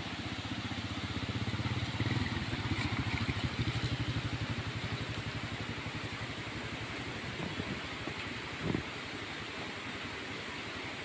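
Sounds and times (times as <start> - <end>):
motorcycle engine passing: 0.6 - 6.3.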